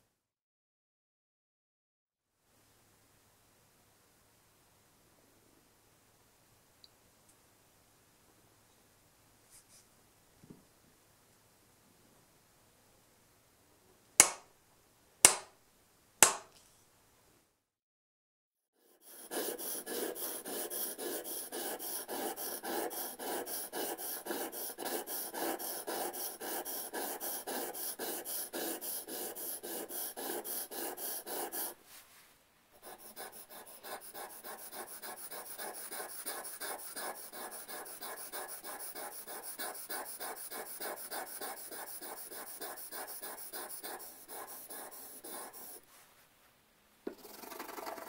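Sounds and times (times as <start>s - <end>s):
chisel scraping on whetstone: 19.0s - 31.7s, 32.9s - 45.8s, 47.1s - 48.0s.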